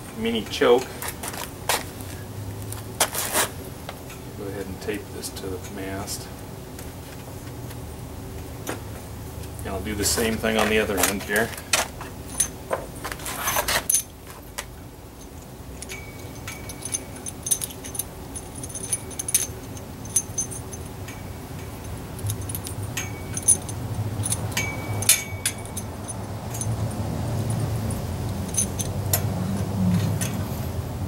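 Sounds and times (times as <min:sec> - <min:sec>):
cable clicking and metallic rattles: 0:09.9 - 0:30.5.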